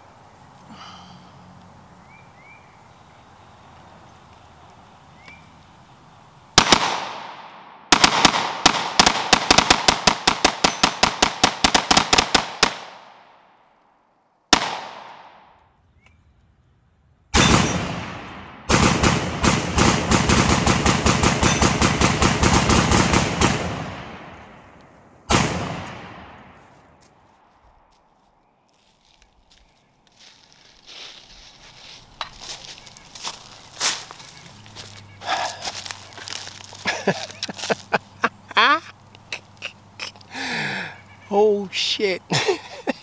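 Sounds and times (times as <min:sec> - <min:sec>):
rifle shots with echo: 0:06.6 - 0:13.4, 0:14.5 - 0:15.6, 0:17.4 - 0:26.9.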